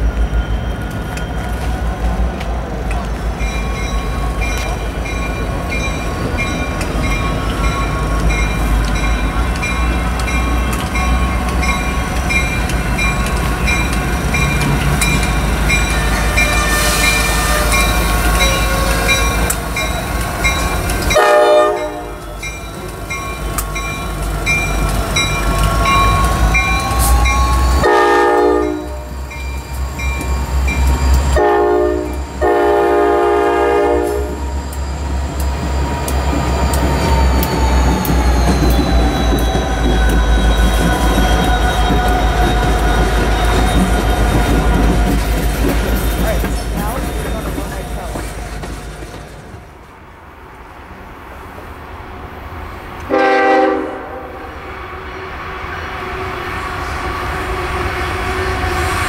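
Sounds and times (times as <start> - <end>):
diesel locomotive engine rumble: 0.0 - 59.0
locomotive bell ringing: 2.9 - 32.6, 34.4 - 48.3
multi-note air horn blast: 31.4 - 34.4, 53.1 - 54.6.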